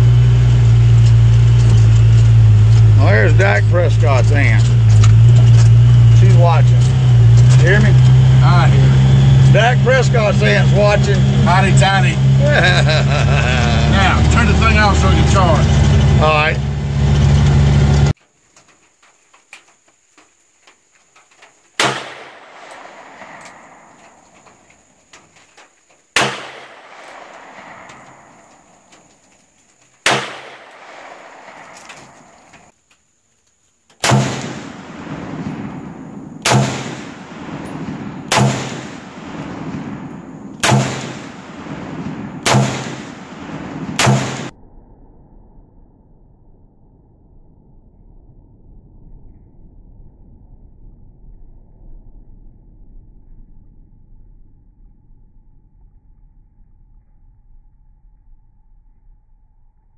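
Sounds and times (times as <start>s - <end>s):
vehicle engine rumbling: 0.0s - 44.6s
revolver gunshot with echo: 21.8s - 25.0s, 26.2s - 29.2s, 30.0s - 32.7s, 34.0s - 44.5s
rifle shots ringing out: 21.8s - 32.7s, 34.0s - 44.5s.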